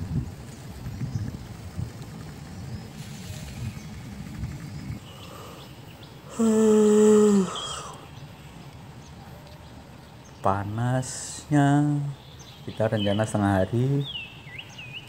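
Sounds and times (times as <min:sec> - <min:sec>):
low outdoor rumble: 0:00.0 - 0:15.0
man's drawn-out vocal sound: 0:06.3 - 0:08.0.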